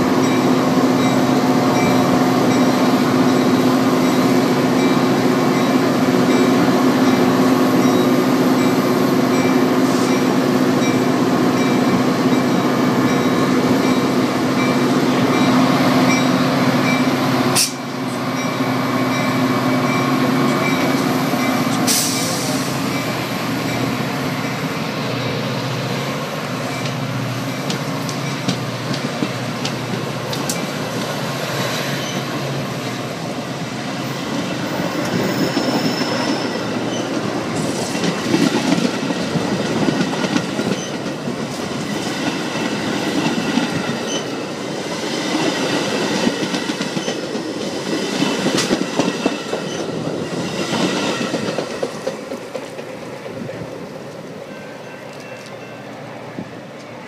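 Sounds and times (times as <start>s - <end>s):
diesel locomotive engine hum: 0.0s - 57.0s
train wheels rumbling on rails: 0.0s - 57.0s
wheel squeal: 31.9s - 32.3s, 35.0s - 37.2s.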